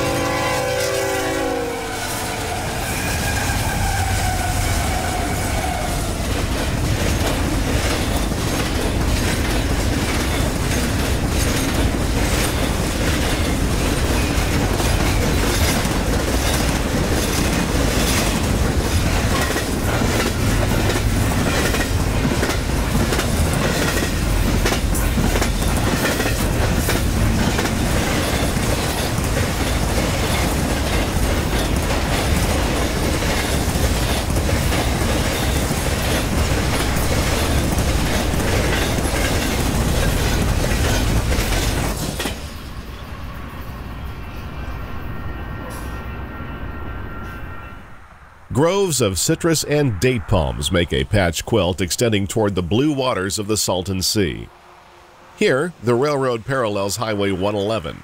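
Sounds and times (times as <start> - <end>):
clickety-clack of rails: 0.0 - 46.2
train wheels rumbling on rails: 0.0 - 48.0.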